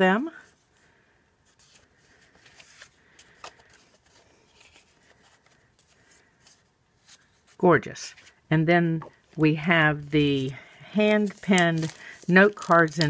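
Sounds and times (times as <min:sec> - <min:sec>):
card stock rustling and ticking: 0:01.6 - 0:07.2, 0:10.0 - 0:13.0.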